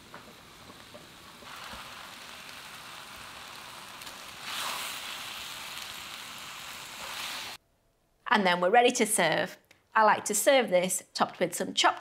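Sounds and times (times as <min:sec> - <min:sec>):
food sizzling in a wok: 0:00.0 - 0:07.6.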